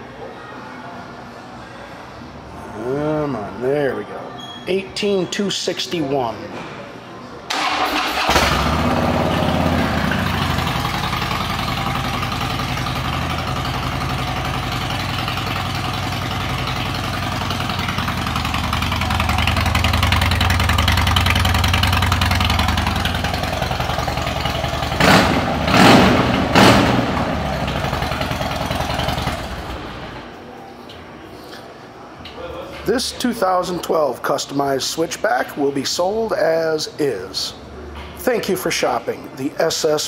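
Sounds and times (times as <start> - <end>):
motorcycle engine idling and revving: 7.8 - 30.3.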